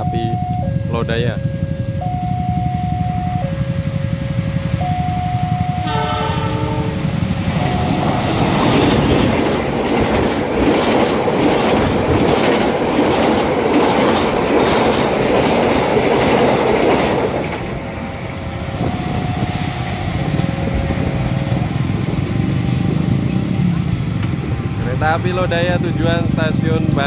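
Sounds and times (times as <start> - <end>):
train rumbling past: 0.0 - 27.0
wheels clacking over rail joints: 6.6 - 17.8.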